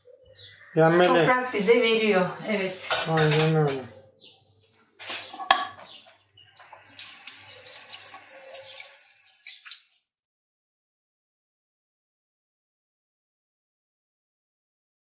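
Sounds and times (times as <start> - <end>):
metal utensil clinking on cookware: 2.7 - 3.8
wet splashy noise: 6.6 - 10.1.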